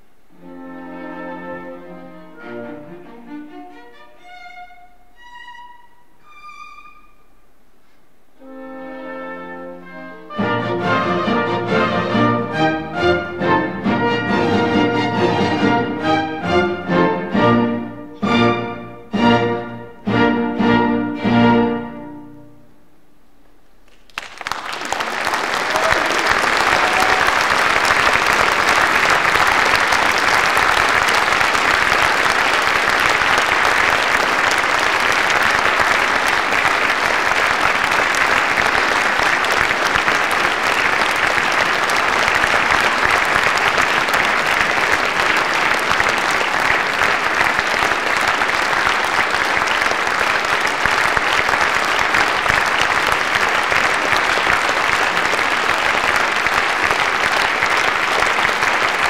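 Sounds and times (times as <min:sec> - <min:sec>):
large audience applauding: 0:23.8 - 0:59.0.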